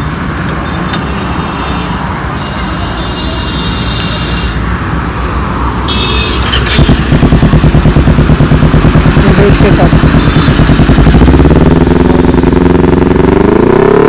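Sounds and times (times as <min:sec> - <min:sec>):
motorcycle engine running: 0:06.4 - 0:14.0.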